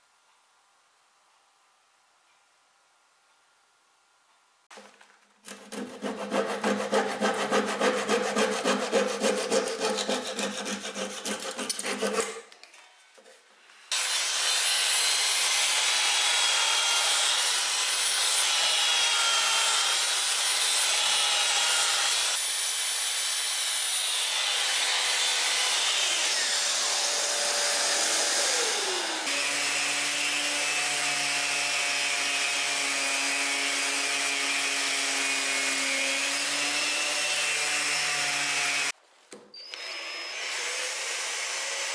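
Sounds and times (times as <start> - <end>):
handsaw cutting wood: 5.4 - 12.5, 13.9 - 39.0
power tool winding down: 26.2 - 30.0, 39.6 - 41.9.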